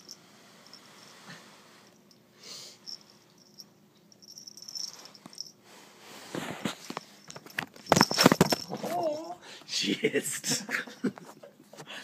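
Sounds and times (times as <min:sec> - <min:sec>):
collar bell jingling: 0:02.8 - 0:05.6
knocks and rustles: 0:06.4 - 0:09.1.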